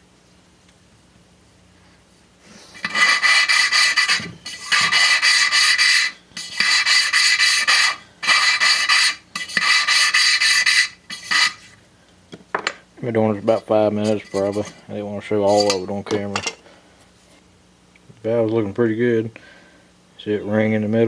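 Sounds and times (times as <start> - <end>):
gritty rasping of valve lapping: 2.8 - 11.6, 14.0 - 15.8.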